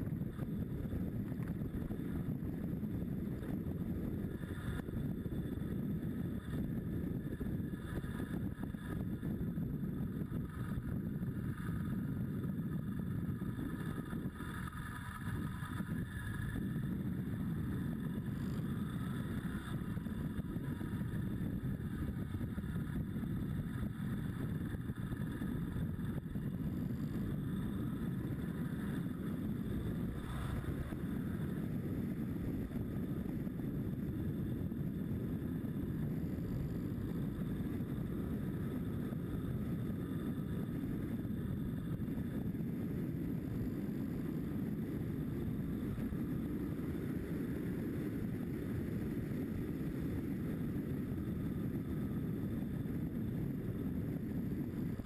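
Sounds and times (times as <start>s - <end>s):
motorcycle engine running: 0.0s - 42.0s
wind noise on microphone: 0.0s - 55.0s.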